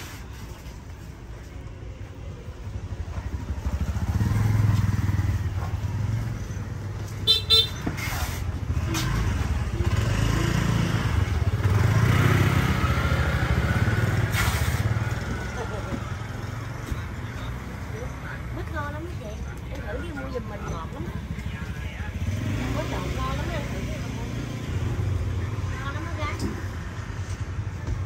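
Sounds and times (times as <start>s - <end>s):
motorbike engines passing: 0.2s - 28.0s
horn toots: 7.2s - 8.1s.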